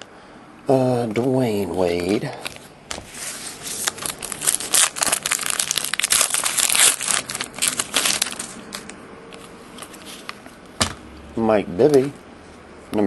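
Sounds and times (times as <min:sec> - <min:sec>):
trading cards rustling and scraping: 0:01.8 - 0:10.7.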